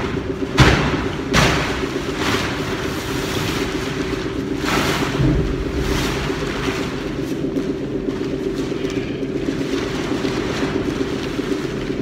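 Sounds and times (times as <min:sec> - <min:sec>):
steady machine hum: 0:00.0 - 0:12.0
plastic sheeting crinkling: 0:01.3 - 0:12.0.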